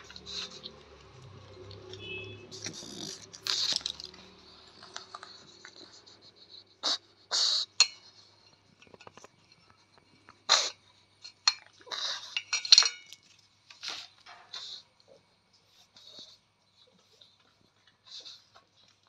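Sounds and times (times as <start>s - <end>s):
dog chewing: 0.0s - 6.2s.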